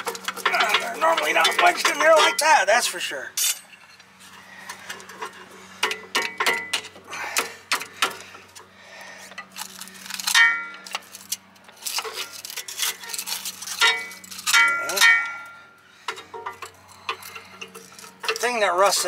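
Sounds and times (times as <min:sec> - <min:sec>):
steel tools scraping and knocking: 0:00.0 - 0:04.1, 0:10.2 - 0:19.0.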